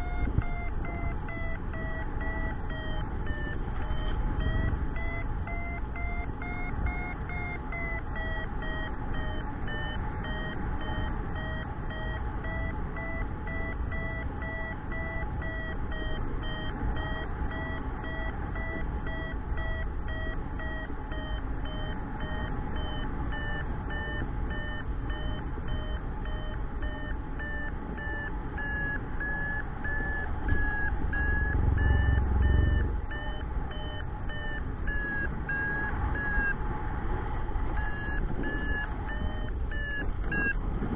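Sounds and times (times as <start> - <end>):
variometer beeping: 0.0 - 36.7, 37.6 - 40.6
wind rumbling on microphone: 34.8 - 40.9.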